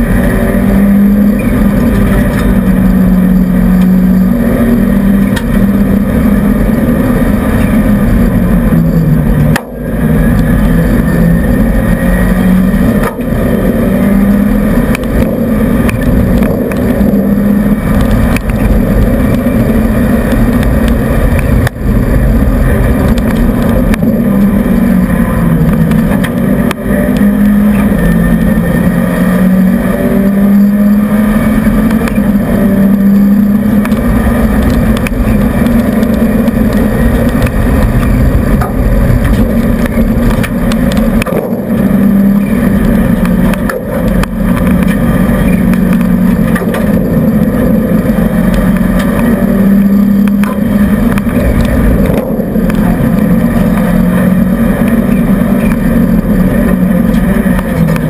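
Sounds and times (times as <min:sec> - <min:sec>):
car engine driven hard: 0:00.0 - 0:58.0.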